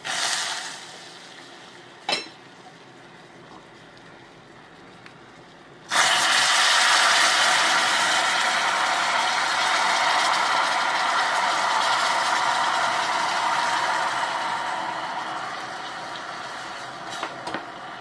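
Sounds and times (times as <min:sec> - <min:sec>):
caramel sizzling in a saucepan: 0:05.9 - 0:17.8.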